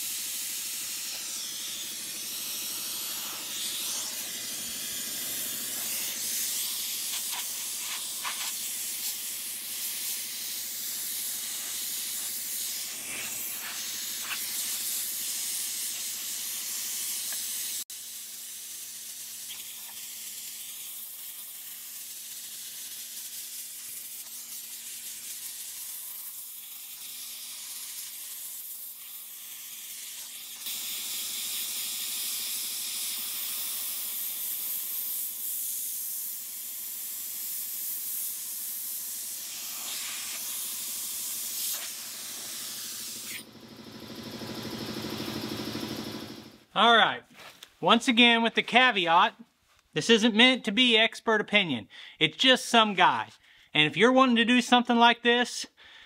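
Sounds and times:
sandblaster hissing: 0.0s - 43.5s.

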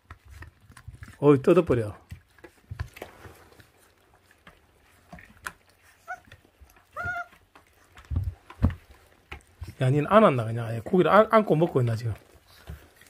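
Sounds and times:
puppies gnawing and tearing meat: 0.0s - 13.0s
soft chewing clicks: 2.0s - 9.8s
puppy whining: 5.8s - 7.8s.

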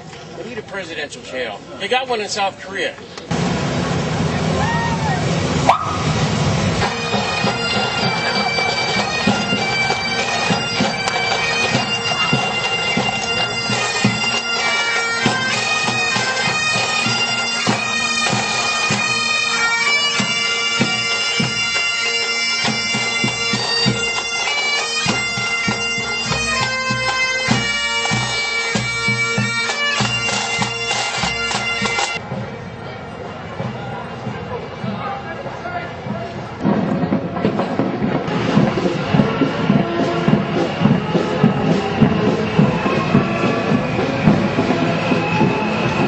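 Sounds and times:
drums beating: 3.3s - 46.0s
bagpipes playing melody: 6.8s - 32.2s.

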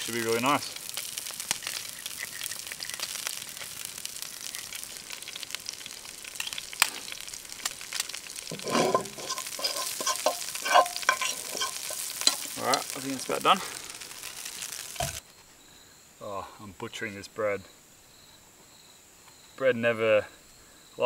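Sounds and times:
onions sizzling in oil: 0.0s - 15.2s
stirring and handling in pan: 0.0s - 15.2s.

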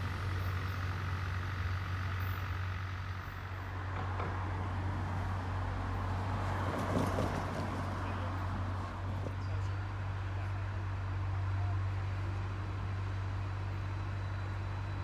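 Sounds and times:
distant diesel locomotive drone: 0.0s - 15.0s
car tyres passing: 3.6s - 9.8s.

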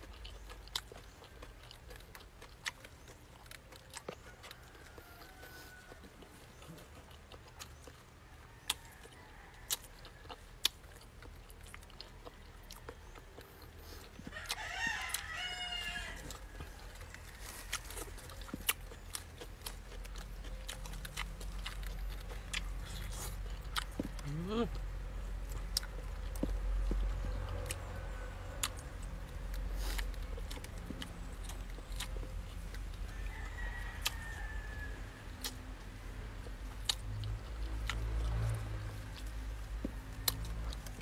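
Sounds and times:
person eating with fingers: 0.0s - 27.9s
rooster crowing: 4.2s - 6.4s, 8.3s - 10.4s, 12.2s - 18.5s, 32.9s - 35.4s.

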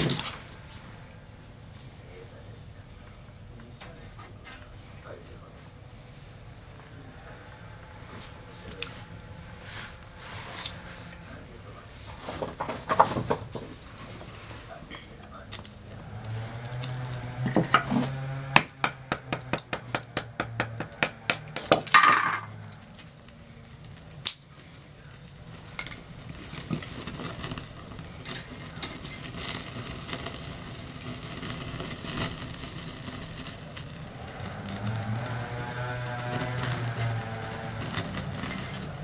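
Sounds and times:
sausages sizzling on a grill: 0.0s - 2.1s, 11.9s - 39.0s
stove fire crackling and hissing: 0.0s - 39.0s.

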